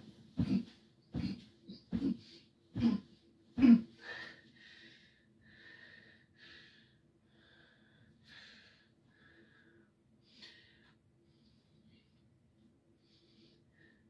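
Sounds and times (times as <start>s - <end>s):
heavy thumps on a mattress: 0.0s - 2.2s
man breathing heavily: 0.2s - 11.0s.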